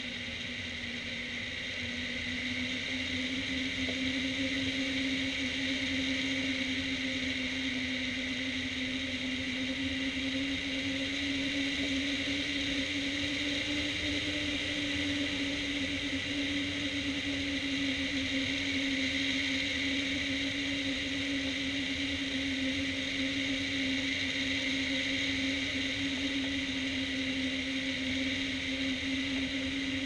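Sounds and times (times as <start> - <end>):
constant humming tone: 0.0 - 30.0.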